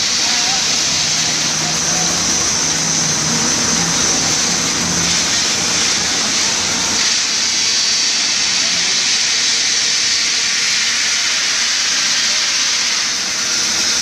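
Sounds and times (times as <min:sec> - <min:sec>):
concrete spraying onto rebar: 0:00.0 - 0:14.0.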